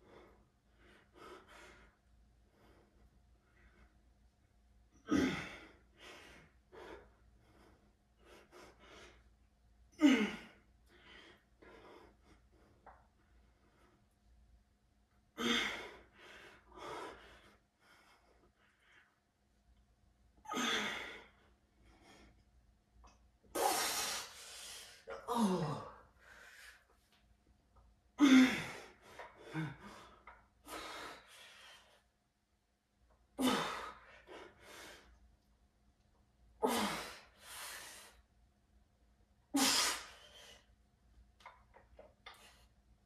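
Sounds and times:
man grunting: 0:25.1 - 0:26.0.

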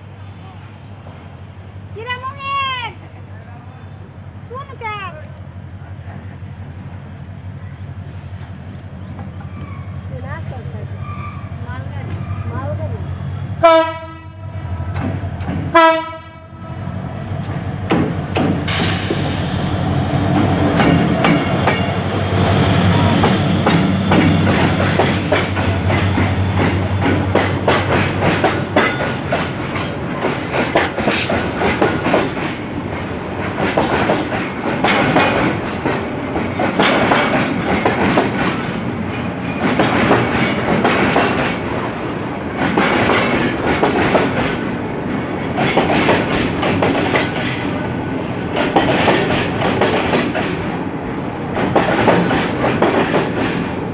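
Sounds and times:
locomotive engine hum: 0:00.0 - 0:53.9
train wheels clattering over rail joints: 0:14.9 - 0:15.8, 0:17.4 - 0:19.6, 0:20.3 - 0:22.0, 0:23.1 - 0:53.9.

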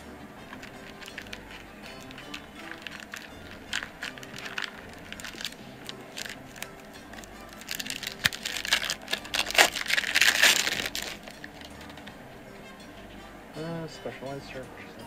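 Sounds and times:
quiet background music: 0:00.0 - 0:15.0
foil wrapper crinkling: 0:00.5 - 0:12.1.

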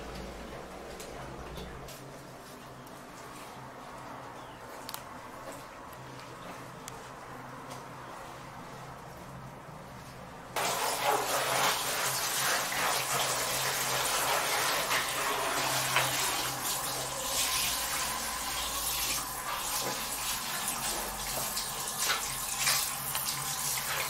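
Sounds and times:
shower water splashing on tiles: 0:10.6 - 0:24.0.

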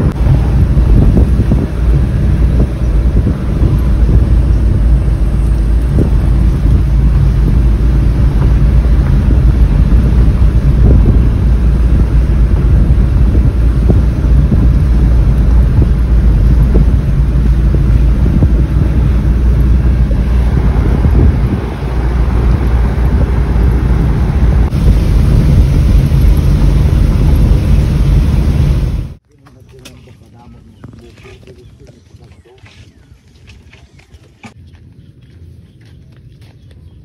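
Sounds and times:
wind buffeting microphone: 0:00.0 - 0:29.2
road and engine rumble: 0:00.0 - 0:37.0.

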